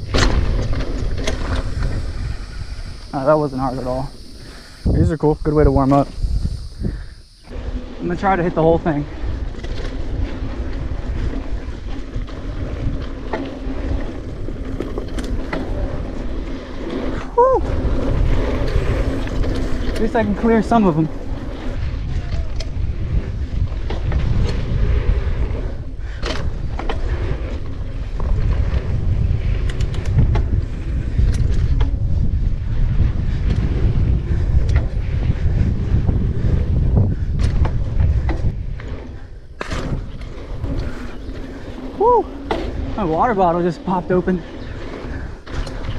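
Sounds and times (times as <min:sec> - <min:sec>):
bike clicks and rattles: 0:00.0 - 0:04.8, 0:05.8 - 0:45.9
tyres rumbling on dirt: 0:00.0 - 0:45.9
wind on microphone: 0:00.0 - 0:45.9.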